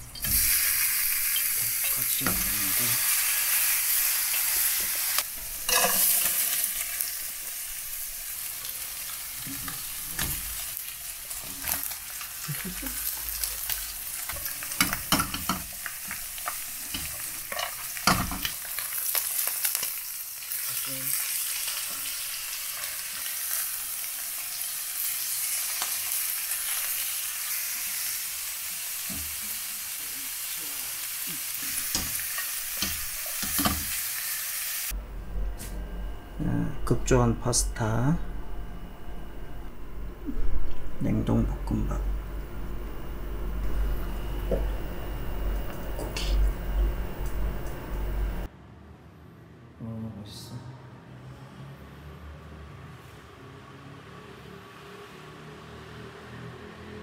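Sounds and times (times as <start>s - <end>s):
food sizzling in oil: 0.0s - 35.0s.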